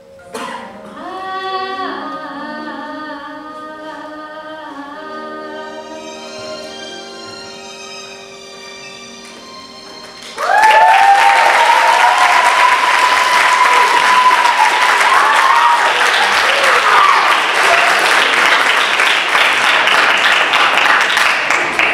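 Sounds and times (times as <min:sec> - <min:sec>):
audience applause and cheering: 0:09.2 - 0:21.9
high whoops: 0:10.4 - 0:18.1.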